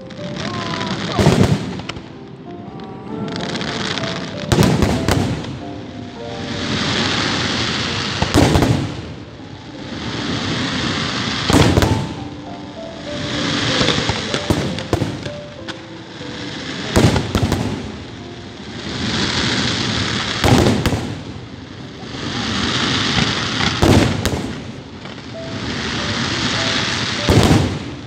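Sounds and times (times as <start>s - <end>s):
fireworks bangs: 0.0s - 2.2s, 3.1s - 28.0s
fireworks crackling hiss: 0.0s - 28.0s.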